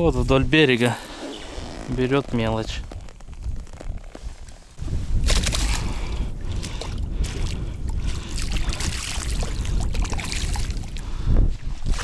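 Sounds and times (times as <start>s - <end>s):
wind rumble on microphone: 2.0s - 12.0s
river water splashing: 8.3s - 11.0s.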